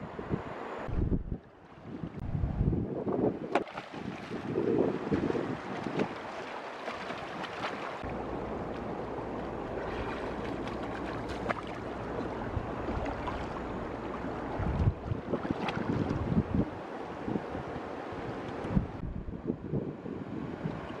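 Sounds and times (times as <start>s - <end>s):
wind rumbling on microphone: 0.0s - 21.0s
shallow river water rushing: 3.5s - 19.0s
fish splashing in water: 3.6s - 8.2s, 9.7s - 14.3s.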